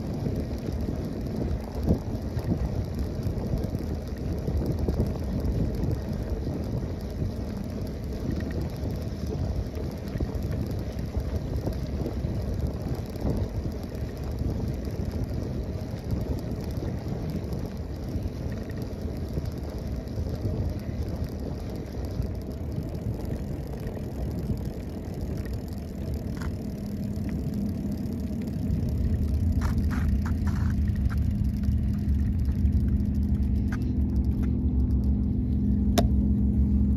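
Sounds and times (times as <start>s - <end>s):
bike tyres rolling on pavers: 0.0s - 36.9s
wind buffeting microphone: 0.0s - 36.9s
low drone: 16.9s - 36.9s.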